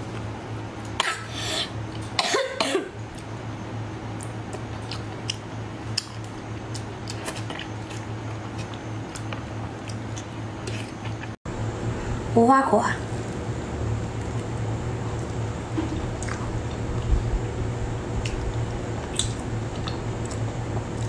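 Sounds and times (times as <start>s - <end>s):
steady low hum: 0.0s - 21.0s
chewing with wet mouth clicks: 4.2s - 11.4s, 15.1s - 17.1s, 18.2s - 21.0s.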